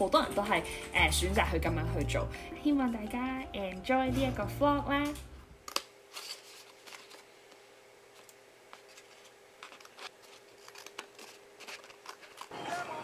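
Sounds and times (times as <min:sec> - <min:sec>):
scissors cutting paper: 0:08.8 - 0:12.5.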